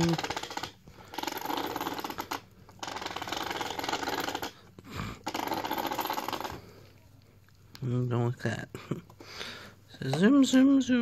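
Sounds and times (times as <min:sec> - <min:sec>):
toy car motor whirring: 0:00.0 - 0:04.6.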